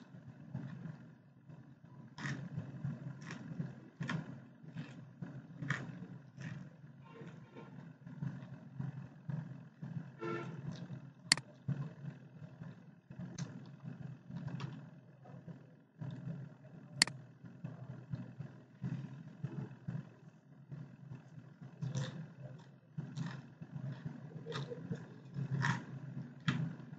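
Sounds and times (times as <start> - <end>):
low background rumble: 0.0 - 26.9.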